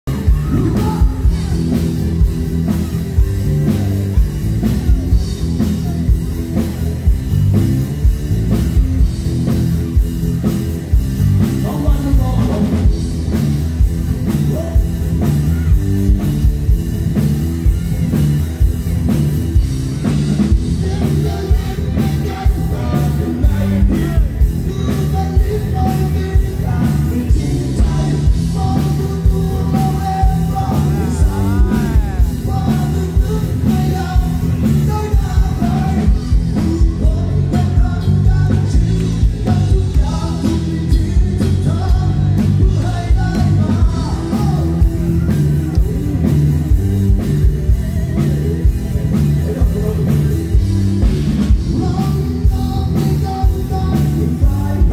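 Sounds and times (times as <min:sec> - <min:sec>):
man singing: 0:00.0 - 0:03.9, 0:11.4 - 0:13.4, 0:14.2 - 0:15.8, 0:20.0 - 0:46.3, 0:47.1 - 0:54.9
drum kit beat: 0:00.0 - 0:54.9
keyboard: 0:00.0 - 0:54.9.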